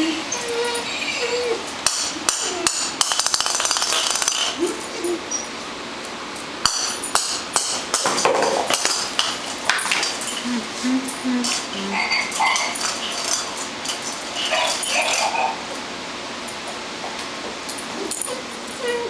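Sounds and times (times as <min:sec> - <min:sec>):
plastic toy ball clattering on floor: 0:03.0 - 0:04.6.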